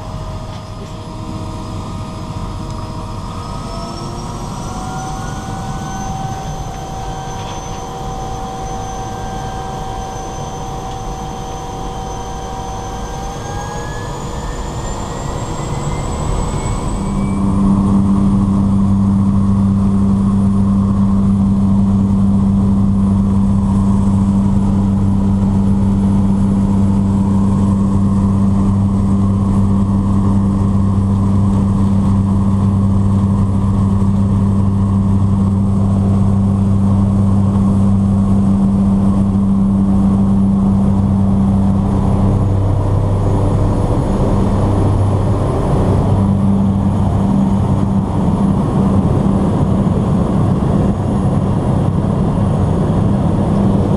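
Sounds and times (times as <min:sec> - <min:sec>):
floatplane engine and propeller drone: 0:00.0 - 0:53.9.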